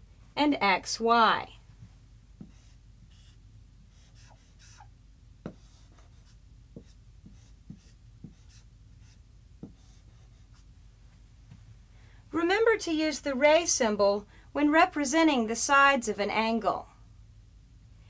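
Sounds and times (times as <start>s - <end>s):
marker writing on whiteboard: 2.4s - 10.7s.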